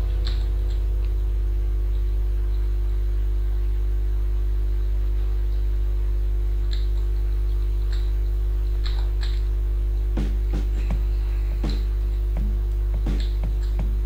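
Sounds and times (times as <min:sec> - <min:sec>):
electrical mains hum: 0:00.0 - 0:14.0
faint clicks: 0:06.7 - 0:09.5
faint background music: 0:07.3 - 0:14.0.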